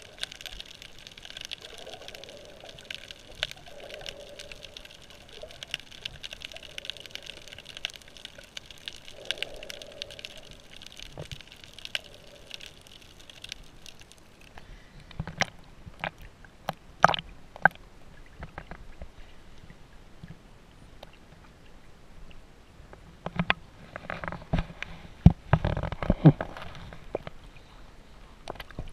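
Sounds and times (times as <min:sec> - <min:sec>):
underwater hiss: 0:00.0 - 0:13.4.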